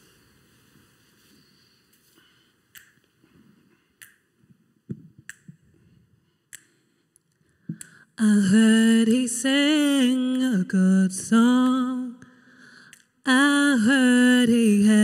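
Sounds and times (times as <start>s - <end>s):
finger snaps: 2.7s - 3.2s, 4.0s - 4.3s, 4.9s - 5.6s, 6.5s - 8.0s, 11.6s - 13.2s.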